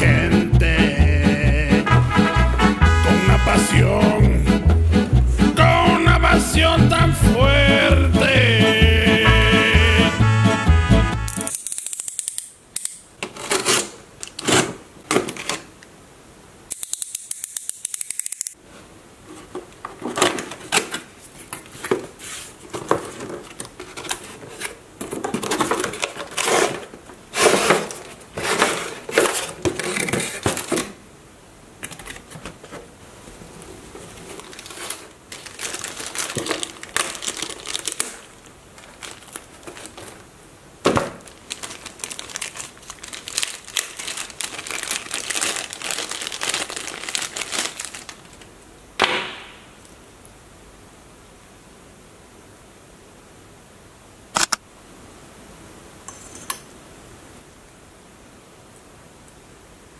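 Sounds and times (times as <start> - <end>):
cardboard scraping: 13.3 - 15.6, 19.2 - 31.0, 33.7 - 38.2, 38.8 - 40.3
plastic packaging crinkling: 34.0 - 40.3, 40.9 - 48.6
small plastic bag crinkling: 34.0 - 40.3, 41.2 - 48.6
sharp knock: 49.0 - 49.7.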